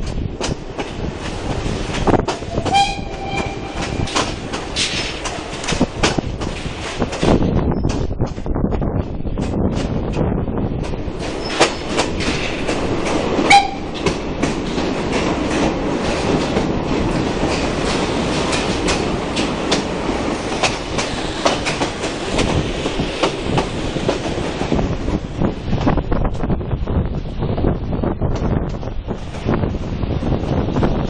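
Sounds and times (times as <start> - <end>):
wheels clicking over rail joints: 0.0 - 8.5, 9.1 - 26.0
train carriages rumbling in tunnel: 0.0 - 31.0
brief shrill note: 2.5 - 4.3.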